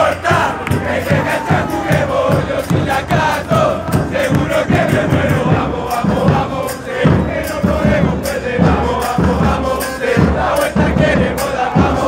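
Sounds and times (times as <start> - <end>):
bass drums beating: 0.0 - 12.0
crowd singing a chant in unison: 0.0 - 12.0.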